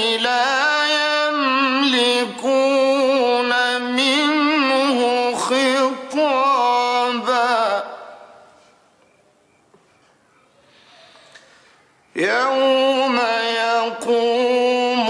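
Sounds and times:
man chanting melodically: 0.0 - 8.4, 12.1 - 15.0.

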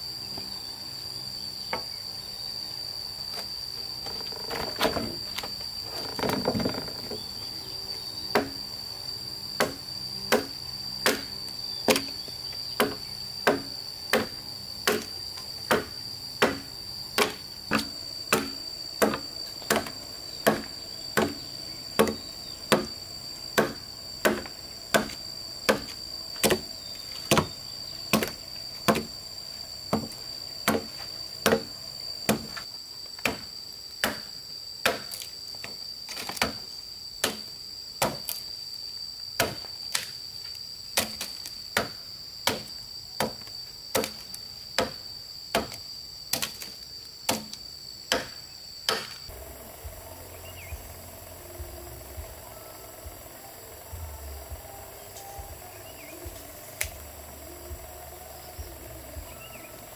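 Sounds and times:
high-pitched insect drone: 0.0 - 59.9
tool striking wood: 8.3 - 8.6, 9.6 - 12.2, 12.8 - 23.0, 23.6 - 26.7, 27.3 - 29.1, 29.9 - 31.7, 32.3 - 32.6, 33.2 - 35.2, 41.8 - 44.2, 47.3 - 49.2.

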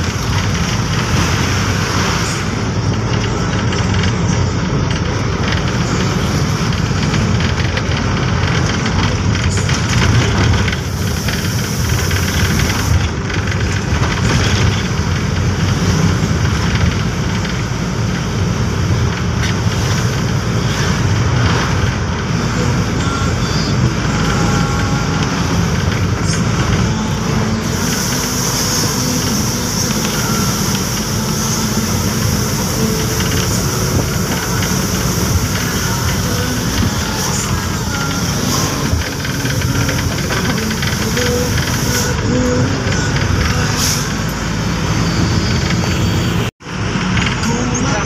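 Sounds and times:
road noise: 0.0 - 48.0
vehicle engine rumble: 0.0 - 48.0
hissing rush: 27.6 - 42.3.

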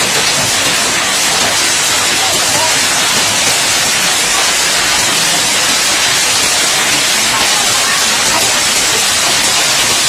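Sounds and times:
hail on wet concrete: 0.0 - 10.0.

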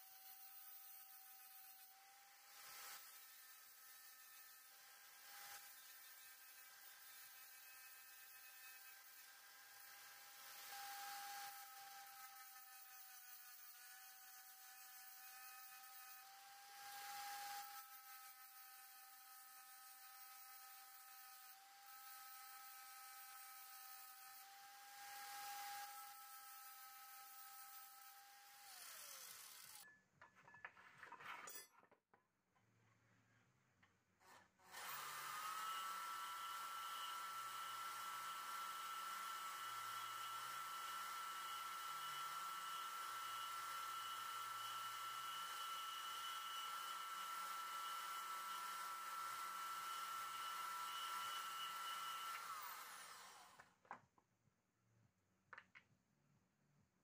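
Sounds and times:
angle grinder on steel: 0.0 - 29.9, 44.6 - 53.6
band saw cutting metal rod: 0.0 - 29.9, 44.5 - 53.6.

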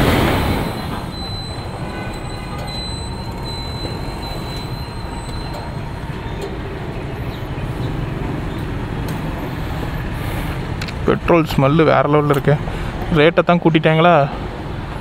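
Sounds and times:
fuel pump humming: 0.0 - 13.2.

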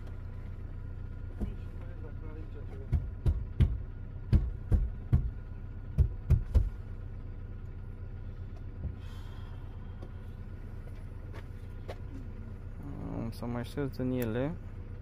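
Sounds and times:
car interior hum: 0.0 - 15.0
heavy knocks: 2.8 - 6.8.

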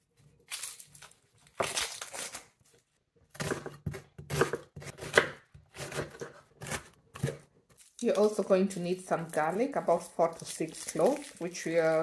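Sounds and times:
knife cutting onion on board: 3.3 - 7.5.

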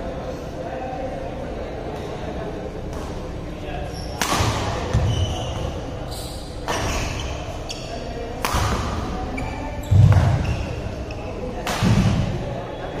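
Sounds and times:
racket striking shuttlecock: 4.2 - 5.0, 8.4 - 9.0
shoes squeaking on court: 4.9 - 8.1, 9.3 - 11.3.

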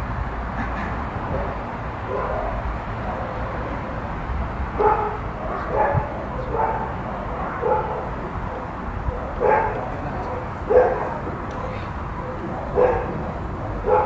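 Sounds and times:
dog barking: 2.1 - 3.8, 4.8 - 14.0.

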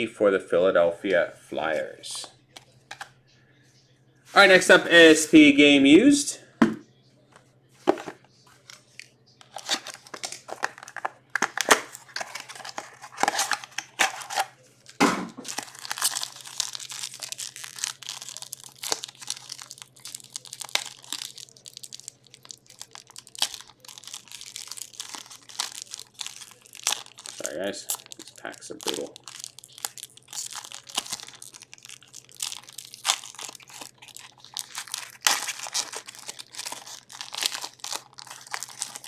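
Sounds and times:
wrappers tearing and crinkling: 8.7 - 39.0.

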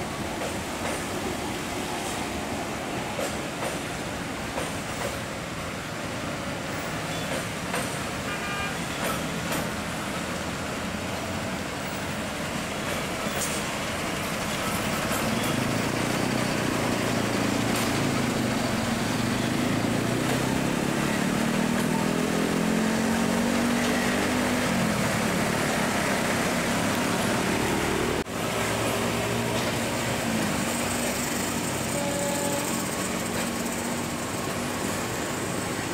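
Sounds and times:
diesel engines of rail machines: 0.0 - 35.9.

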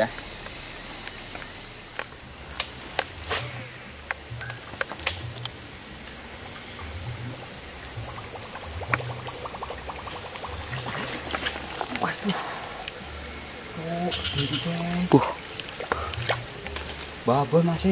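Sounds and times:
cicadas droning: 0.0 - 17.9
sharp clicks: 0.1 - 5.6
low muffled thumps: 2.2 - 9.5.

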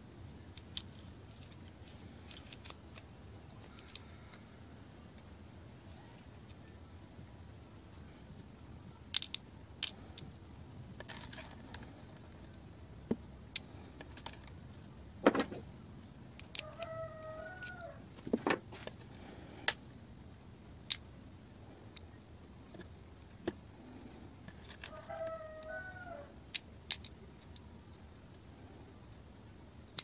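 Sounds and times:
metal parts clicking and clinking: 0.4 - 4.4, 7.9 - 15.7, 16.3 - 19.9, 21.9 - 25.7, 26.5 - 27.7.

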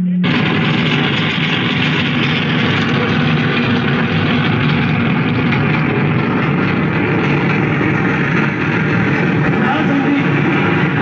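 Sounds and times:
train rumbling: 0.0 - 11.0.

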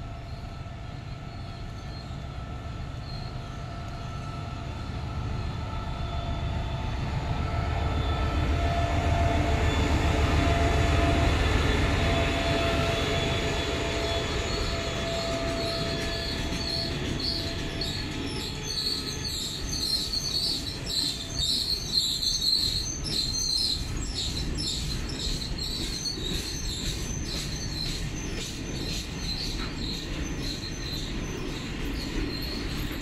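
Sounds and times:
train rumbling: 0.0 - 33.0
high-pitched wheel squeals: 12.0 - 33.0.

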